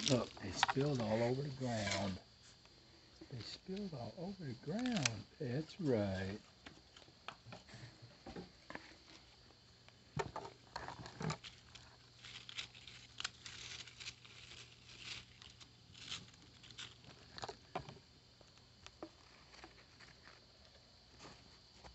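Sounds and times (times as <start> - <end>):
raccoons crunching food: 0.0 - 5.6, 10.5 - 20.9.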